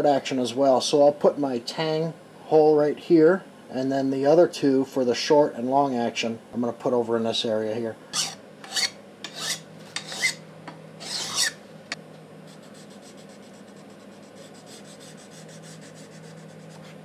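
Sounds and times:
hand file scraping metal: 8.2s - 10.4s, 11.0s - 11.6s
fine scratching on metal: 11.0s - 11.6s.

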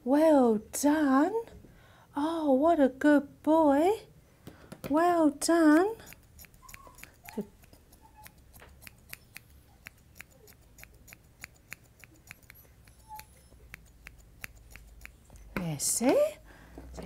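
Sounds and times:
scissors snipping hair: 5.5s - 16.4s.

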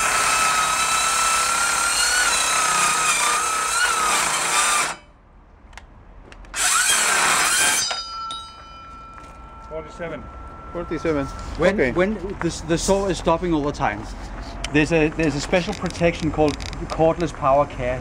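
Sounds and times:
circular saw cutting steel: 0.0s - 5.1s, 6.6s - 8.4s, 9.6s - 13.2s.

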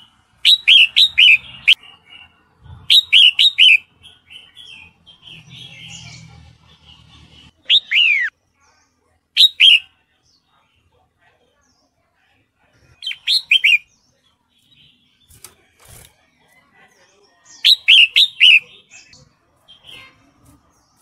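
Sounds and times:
soft bird chattering: 12.7s - 15.8s, 16.4s - 21.0s.

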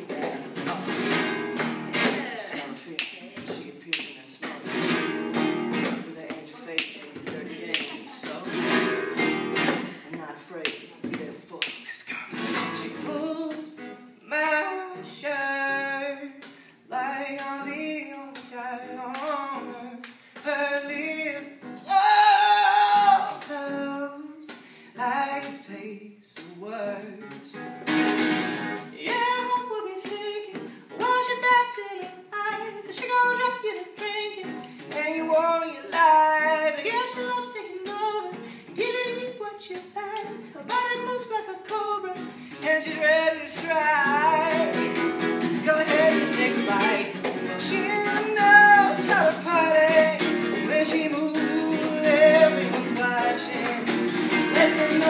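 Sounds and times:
acoustic guitar: 0.0s - 55.0s
person singing: 9.6s - 27.5s, 28.9s - 55.0s.

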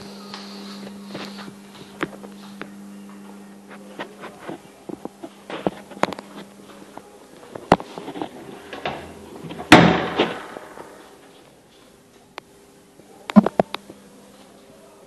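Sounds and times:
loud bang: 9.7s - 10.8s.

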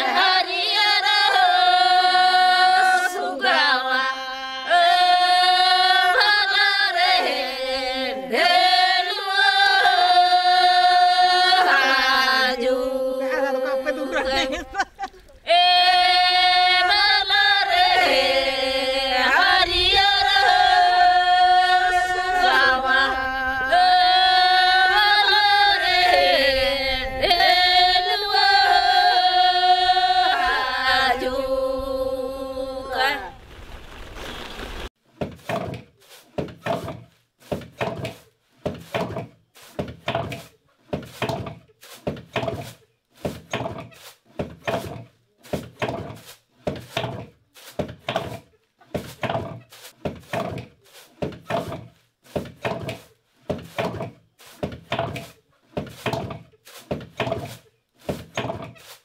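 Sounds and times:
women singing slow melody: 0.0s - 33.4s
dull thuds: 35.2s - 59.0s.

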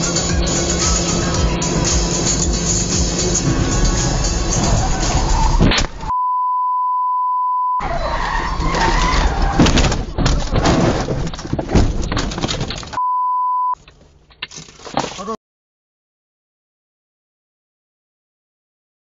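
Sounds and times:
car crash: 3.3s - 6.1s, 7.8s - 13.0s
censor bleep: 6.1s - 7.8s, 13.0s - 13.8s.

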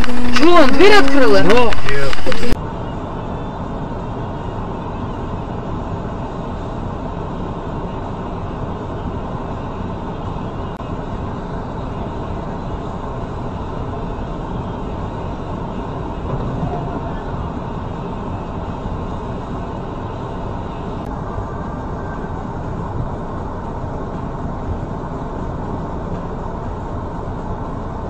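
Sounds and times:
street traffic rumble: 0.0s - 28.0s.

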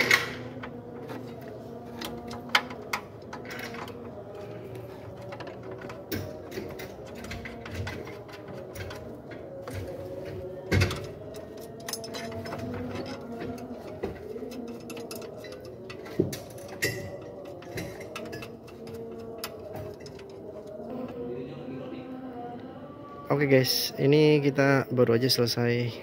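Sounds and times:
metal tools clicking and knocking: 0.0s - 4.2s, 5.1s - 20.8s.

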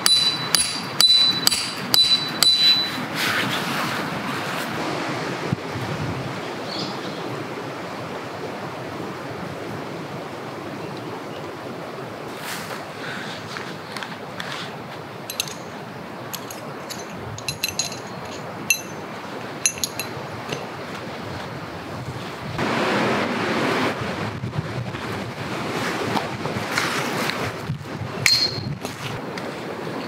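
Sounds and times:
metal pole clinking: 0.0s - 3.0s, 15.3s - 20.8s, 28.2s - 28.7s.

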